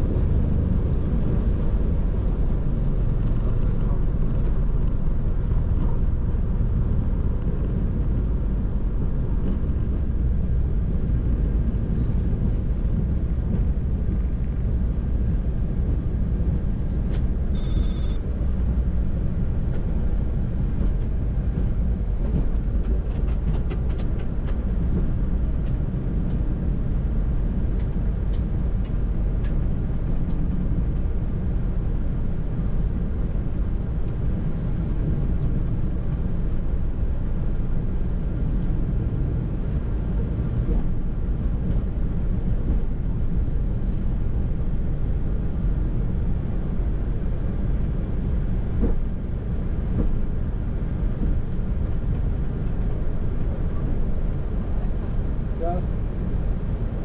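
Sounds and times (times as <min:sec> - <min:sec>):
airliner cockpit rumble: 0:00.0 - 0:57.0
high bell-like ding: 0:17.6 - 0:18.2.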